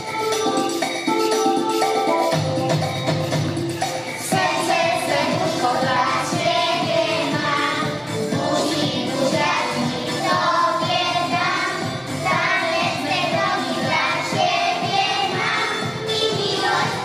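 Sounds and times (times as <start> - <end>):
children singing: 4.2 - 17.0.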